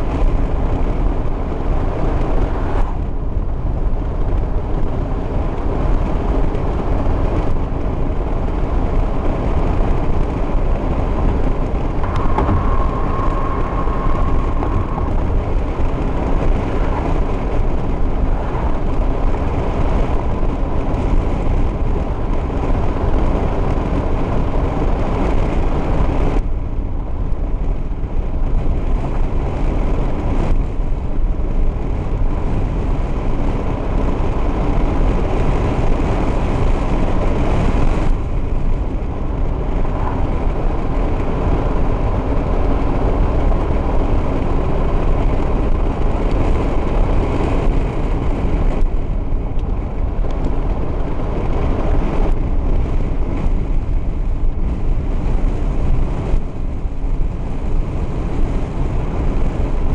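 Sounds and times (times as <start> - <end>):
car engine: 0.0 - 59.9
tyre rumble: 9.7 - 24.8.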